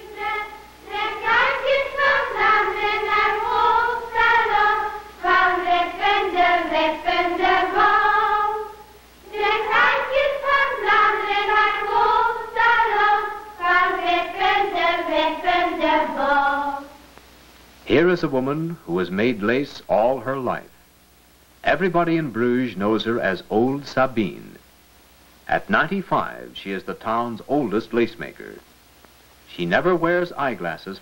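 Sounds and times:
girls singing: 0.0 - 17.0.

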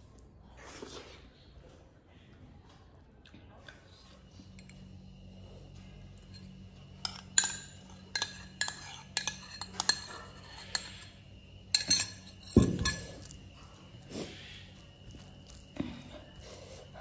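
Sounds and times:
metal spoon scraping ceramic bowl: 6.3 - 13.4.

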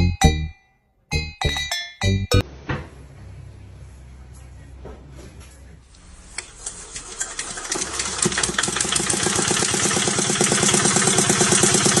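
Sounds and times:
engine running: 6.3 - 12.0.

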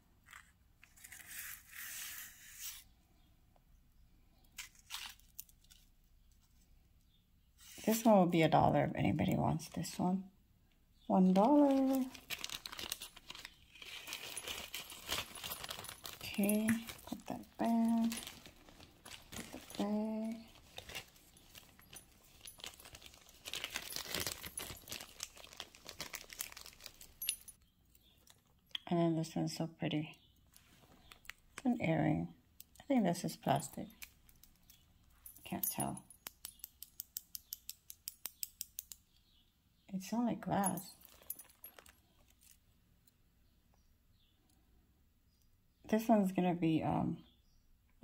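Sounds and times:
beaded necklace rustling: 0.2 - 3.3, 4.5 - 8.4, 11.0 - 28.6, 32.6 - 39.4, 40.4 - 42.8
light clicks of beads: 33.9 - 39.4.

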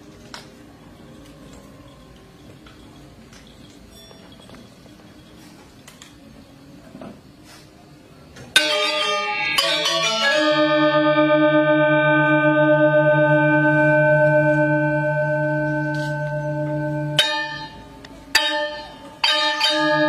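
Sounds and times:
gamelan metallophones ringing: 0.9 - 5.6, 8.6 - 20.0.

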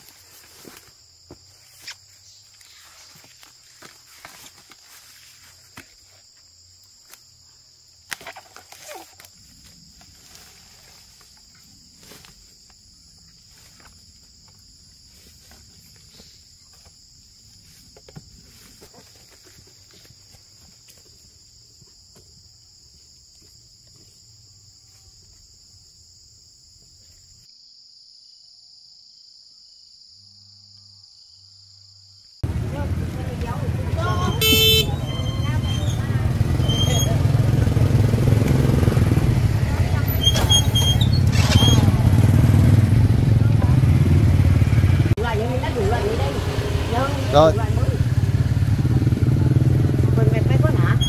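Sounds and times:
rustling in dry leaves: 0.0 - 6.3, 8.3 - 14.2
insect chorus: 0.0 - 51.0.

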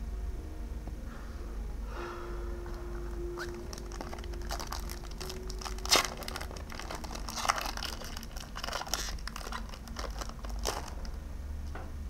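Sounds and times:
foil wrapper crinkling: 2.9 - 11.2
wrapper snapping: 3.1 - 11.2.

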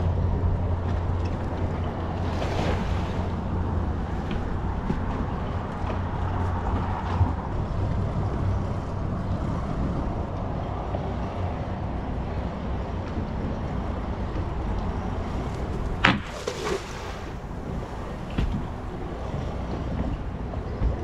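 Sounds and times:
low engine drone: 0.0 - 21.0
wind noise: 0.0 - 21.0.

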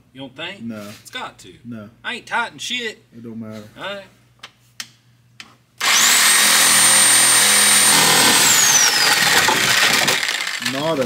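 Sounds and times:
reciprocating saw cutting wood: 5.8 - 10.8.

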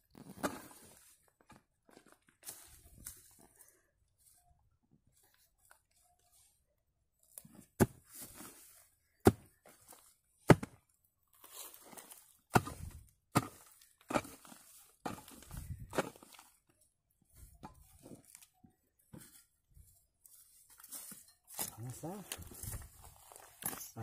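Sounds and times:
soil and pine needles rustling: 0.1 - 24.0
hoe chopping into earth: 10.5 - 10.8, 12.5 - 16.3.

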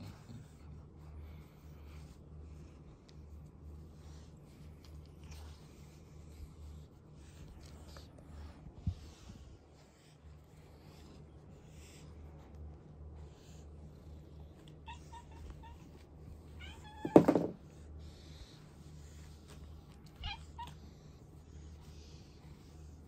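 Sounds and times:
cat meowing: 16.5 - 17.3, 20.1 - 20.8.

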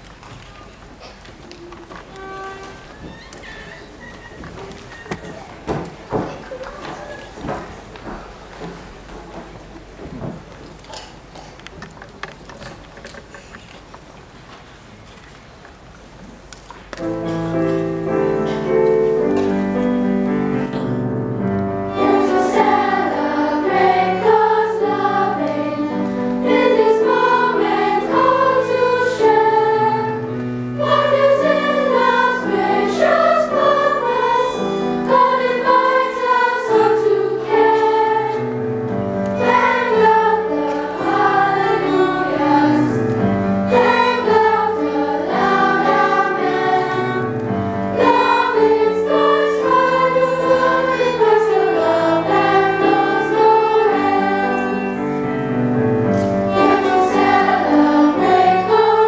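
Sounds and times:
violin playing: 2.1 - 2.9, 21.8 - 38.4, 39.3 - 42.9, 43.5 - 55.3, 56.3 - 59.0
children's choir singing: 17.0 - 59.0.

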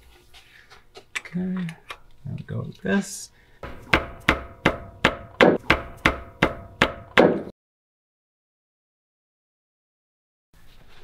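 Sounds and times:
hammer striking metal: 3.6 - 7.5.

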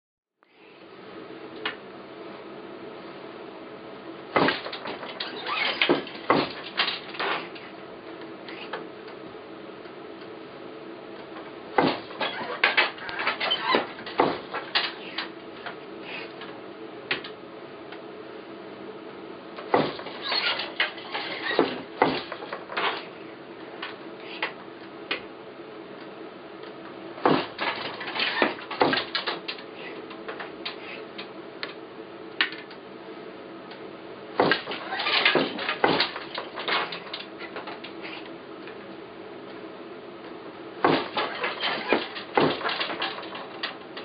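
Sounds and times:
wooden loom clattering: 4.4 - 7.6, 11.8 - 15.3, 19.7 - 23.1, 27.2 - 30.8, 34.4 - 38.2, 40.8 - 44.0.

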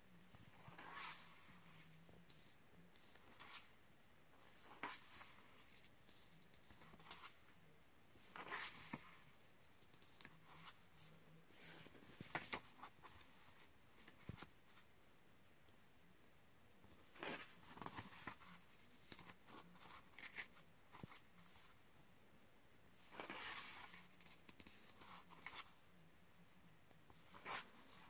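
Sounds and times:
book pages turning: 0.5 - 3.7, 4.4 - 7.5, 8.2 - 14.9, 16.9 - 21.7, 23.0 - 25.8, 27.1 - 28.0.

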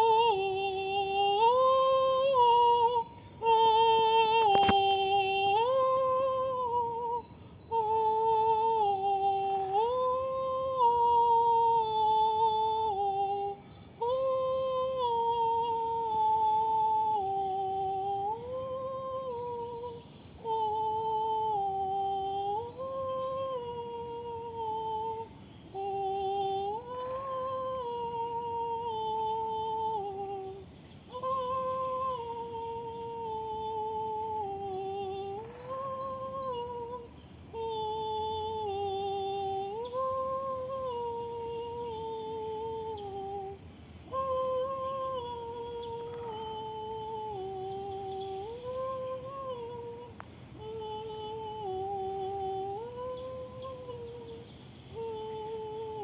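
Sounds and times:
woman humming: 0.0 - 56.0.

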